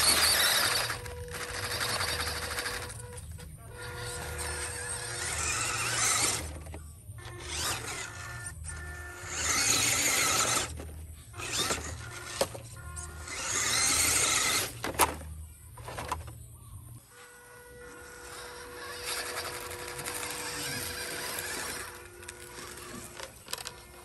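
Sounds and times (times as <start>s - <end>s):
electric toy truck motors whining: 0.0s - 24.0s
background music with steady beat: 11.0s - 17.8s.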